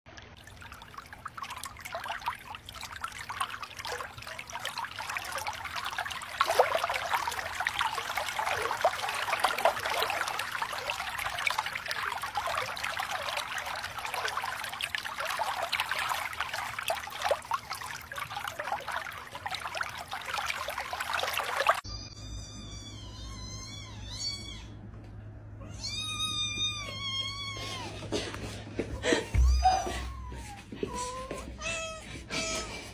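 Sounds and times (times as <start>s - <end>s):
water trickling and splashing: 0.1s - 21.9s.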